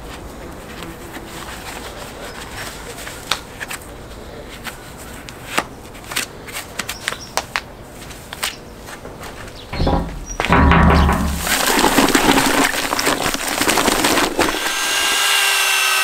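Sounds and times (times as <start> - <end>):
work gloves rustling: 0.0 - 14.8
glove cuffs snapping: 8.3 - 8.6.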